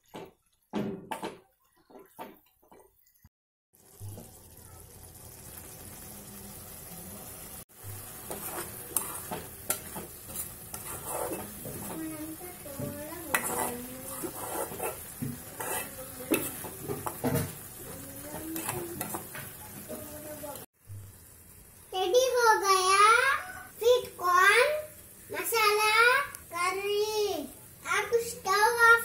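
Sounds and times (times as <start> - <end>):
curry sizzling: 0.0 - 29.0
spoon scraping pan: 8.0 - 20.0.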